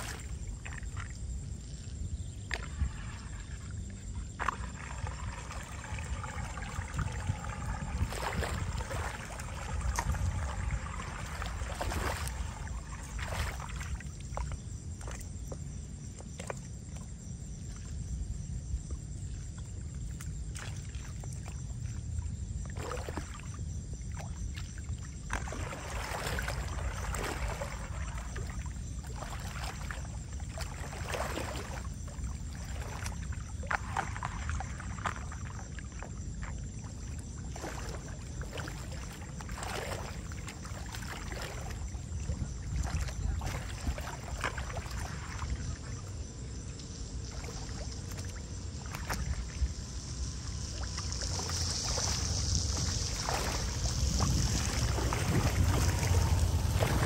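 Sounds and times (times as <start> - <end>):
steady low rumble: 0.0 - 15.8, 40.2 - 57.0
floodwater sloshing and splashing: 0.0 - 57.0.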